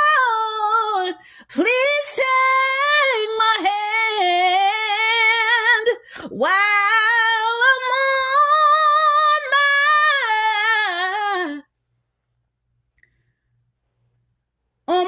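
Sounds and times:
woman singing unaccompanied: 0.0 - 11.7.

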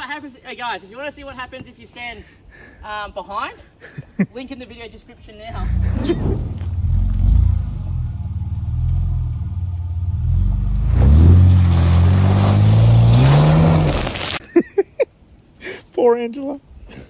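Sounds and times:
engine revving under load: 5.5 - 14.4.

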